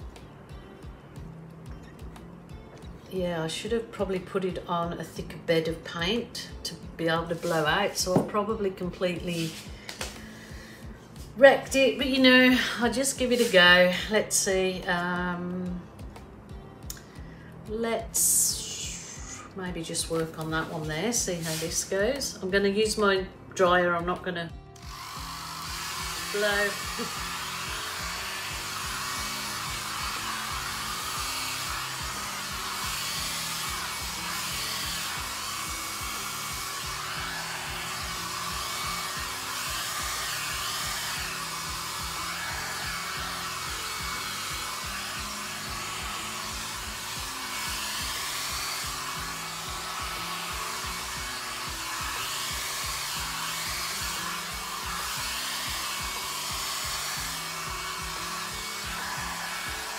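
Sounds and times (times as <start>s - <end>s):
background music: 0.0s - 59.9s
hair dryer blowing: 2.5s - 16.2s, 17.7s - 59.9s.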